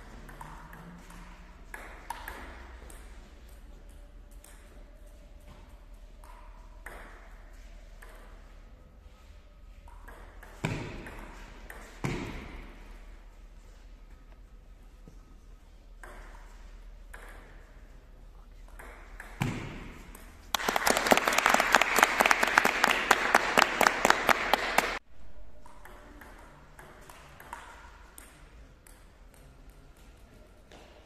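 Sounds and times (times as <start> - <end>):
clapping applause: 20.5 - 25.0.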